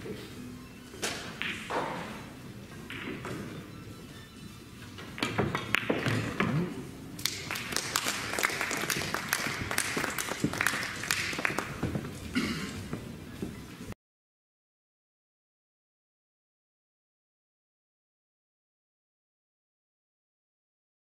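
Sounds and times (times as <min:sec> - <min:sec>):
cue striking billiard balls: 0:01.0 - 0:03.6, 0:05.0 - 0:12.2
audience applause: 0:07.3 - 0:11.8.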